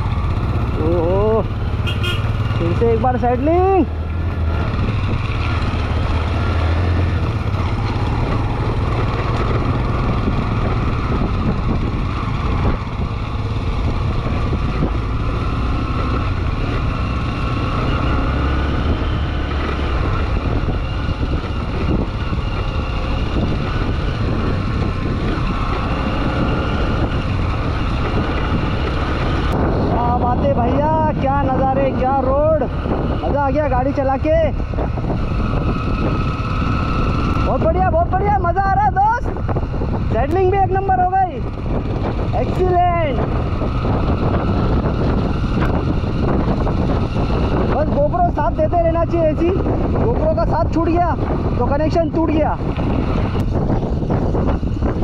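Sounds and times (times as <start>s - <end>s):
motorcycle engine running: 0.0s - 55.0s
wind on microphone: 0.0s - 55.0s.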